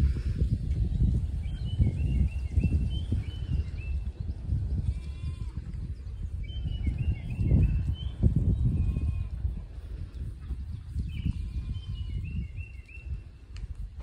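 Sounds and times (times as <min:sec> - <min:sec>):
wind rumbling on microphone: 0:00.0 - 0:14.0
sheep bleat: 0:04.8 - 0:05.7.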